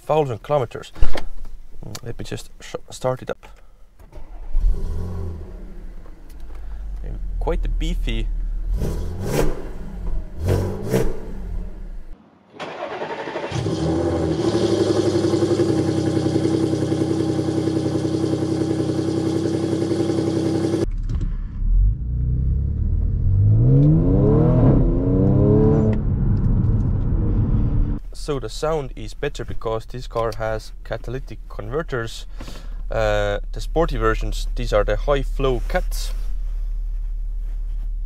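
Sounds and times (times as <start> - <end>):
car engine idling and revving: 4.3 - 12.2, 12.8 - 28.1.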